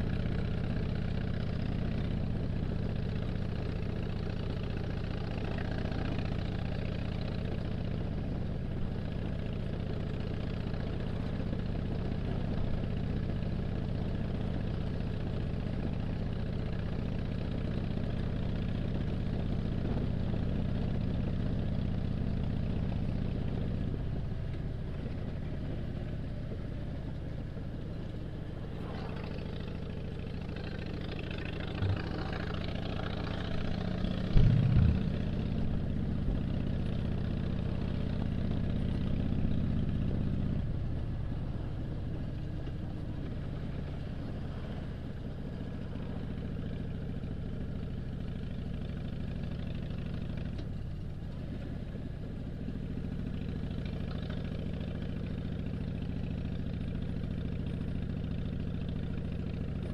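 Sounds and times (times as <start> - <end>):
motorcycle engine running: 0.0 - 59.9
brief thump: 34.3 - 35.4.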